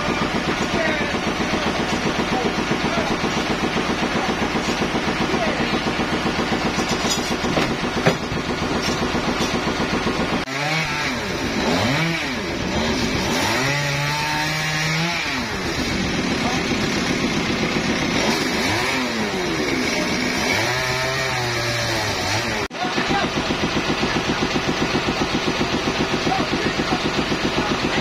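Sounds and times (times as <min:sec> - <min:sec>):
stationary engine idling: 0:00.0 - 0:10.5, 0:15.3 - 0:20.4, 0:22.4 - 0:28.0
chainsaw revving: 0:00.0 - 0:28.0.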